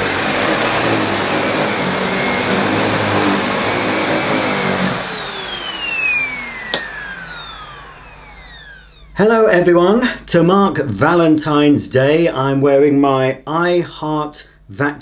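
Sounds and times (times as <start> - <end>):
vacuum cleaner running on carpet: 0.0 - 9.3.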